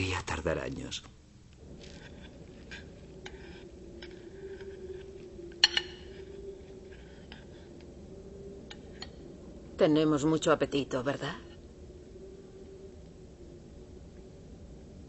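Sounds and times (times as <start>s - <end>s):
metal spoon scraping in a bowl: 1.7s - 7.8s.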